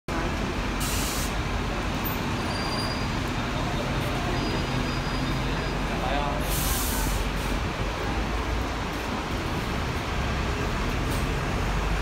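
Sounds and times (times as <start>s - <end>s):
bus diesel engine running: 0.1s - 12.0s
air brake hiss: 0.8s - 1.4s, 6.4s - 7.5s.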